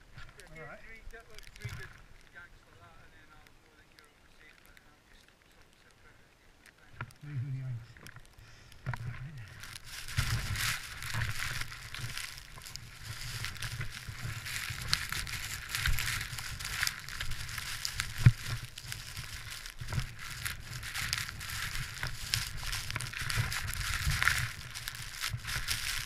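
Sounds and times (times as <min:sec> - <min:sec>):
wind on microphone: 0:08.9 - 0:26.0.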